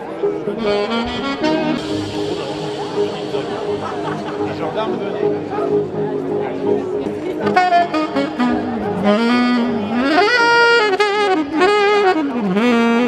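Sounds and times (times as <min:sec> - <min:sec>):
saxophone playing jazzy melody: 0:00.0 - 0:13.0.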